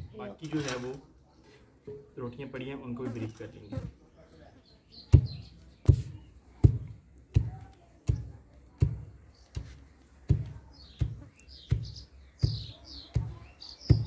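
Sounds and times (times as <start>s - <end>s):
birds chirping: 0.0s - 14.0s
wooden pestle thudding in mortar: 5.1s - 14.0s.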